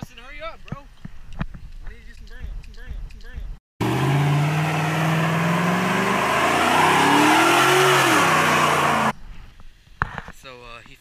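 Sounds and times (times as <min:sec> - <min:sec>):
truck engine revving: 0:03.8 - 0:09.1.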